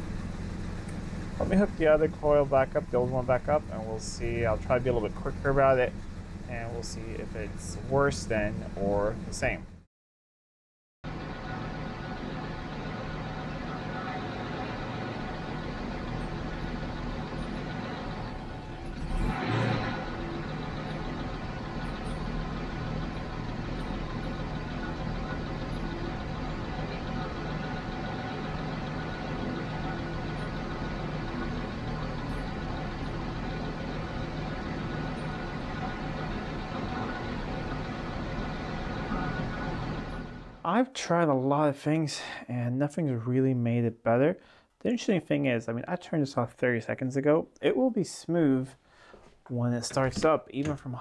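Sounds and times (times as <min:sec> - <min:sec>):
car engine rough idling: 0:00.0 - 0:09.8, 0:11.0 - 0:40.6.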